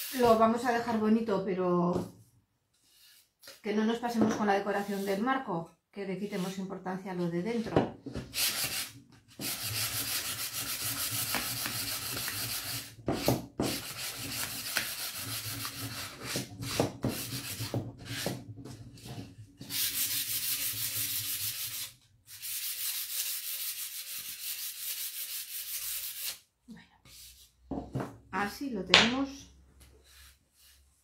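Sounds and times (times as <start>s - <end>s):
sandpaper rasping on wood: 8.4s - 18.2s, 19.7s - 26.4s.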